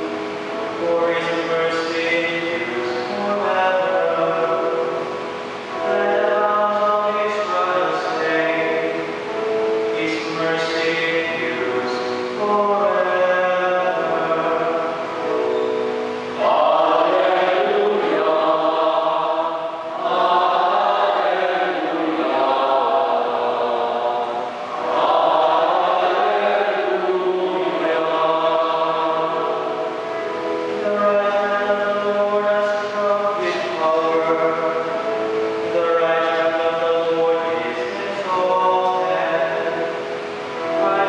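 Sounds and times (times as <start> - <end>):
choir chanting: 15.6 - 30.7.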